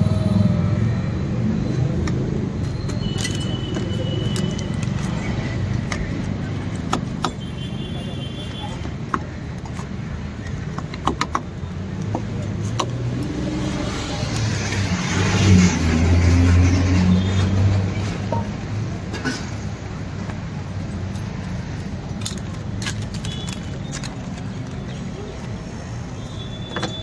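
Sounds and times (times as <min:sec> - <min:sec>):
street traffic: 0:00.0 - 0:27.0
vehicle engine passing by: 0:13.0 - 0:18.2.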